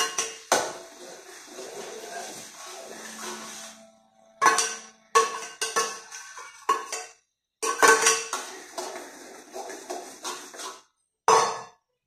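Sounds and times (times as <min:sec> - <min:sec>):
metal spatula clanging on wok: 0:04.4 - 0:09.0, 0:11.3 - 0:11.8.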